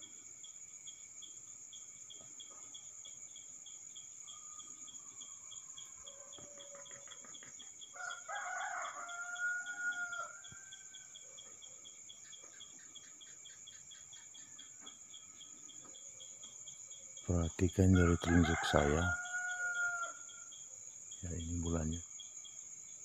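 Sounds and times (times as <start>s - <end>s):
crickets chirping: 0.0s - 23.0s
rooster crowing: 7.9s - 11.2s, 17.9s - 20.5s.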